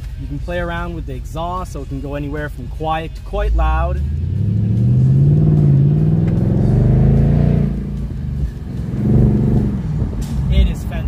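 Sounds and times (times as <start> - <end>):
car engine accelerating: 3.5 - 11.0.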